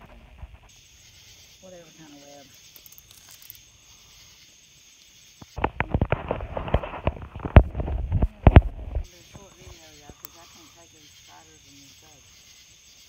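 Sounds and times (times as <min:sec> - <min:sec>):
rustling: 0:05.4 - 0:10.2.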